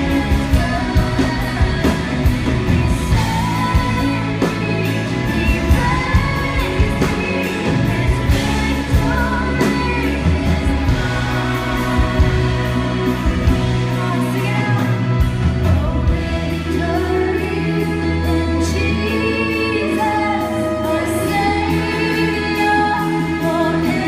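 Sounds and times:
worship band playing: 0.0 - 24.0
people singing worship chorus: 5.4 - 14.4.

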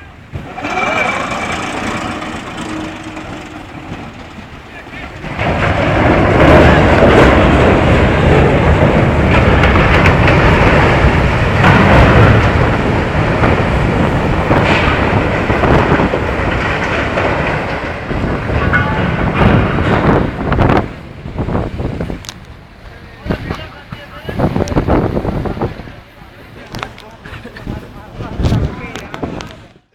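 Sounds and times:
ship hull grinding up beach: 0.0 - 20.8.

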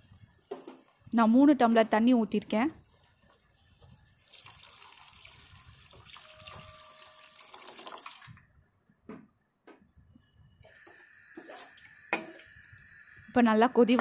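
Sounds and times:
water pouring into a steel pot: 2.8 - 8.4, 10.8 - 12.6.

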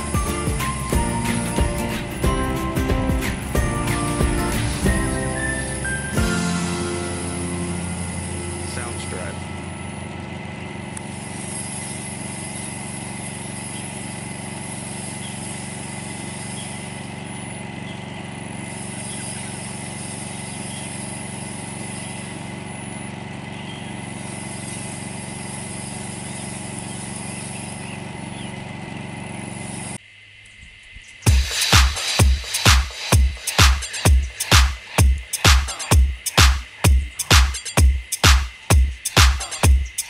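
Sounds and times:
motor running drone: 0.0 - 40.0.

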